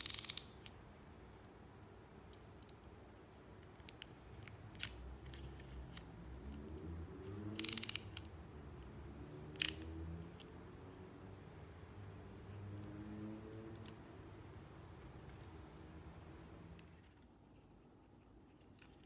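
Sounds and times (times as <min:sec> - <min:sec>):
ratchet-like clicks: 0:00.0 - 0:00.7, 0:07.3 - 0:08.3, 0:09.5 - 0:10.5.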